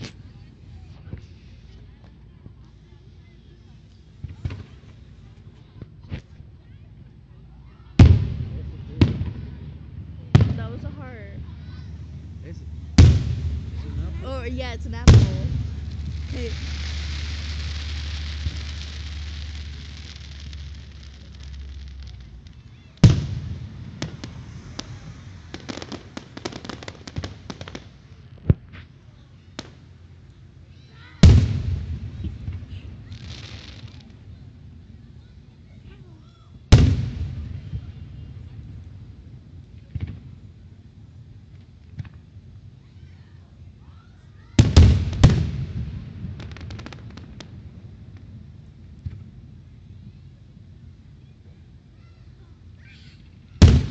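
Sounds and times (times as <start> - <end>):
firework pops and crackles: 0.0 - 3.0, 3.8 - 6.8, 10.3 - 35.8, 36.4 - 43.3, 44.4 - 51.8, 52.7 - 53.9
firework booms with rumble: 4.1 - 5.0, 7.9 - 30.0, 31.0 - 35.1, 36.6 - 42.5, 44.5 - 49.8, 53.5 - 53.9
distant firework pop: 49.0 - 49.3.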